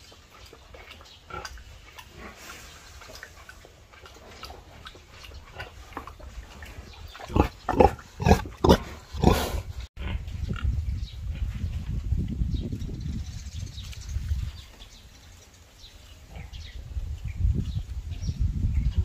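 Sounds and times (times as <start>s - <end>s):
pig snuffling and chewing: 0.0s - 9.2s
pig grunting: 0.8s - 10.3s.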